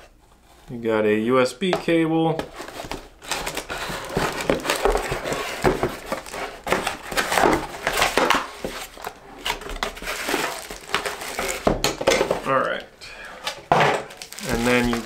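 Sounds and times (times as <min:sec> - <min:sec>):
cardboard scraping and rustling: 0:02.4 - 0:12.6, 0:14.1 - 0:15.0.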